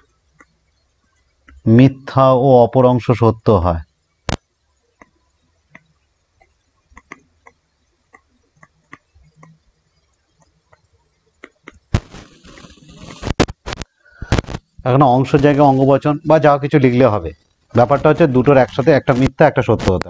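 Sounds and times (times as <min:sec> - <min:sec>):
stylus tapping on tablet: 0:00.4 - 0:00.6, 0:04.3 - 0:09.6, 0:10.4 - 0:12.1.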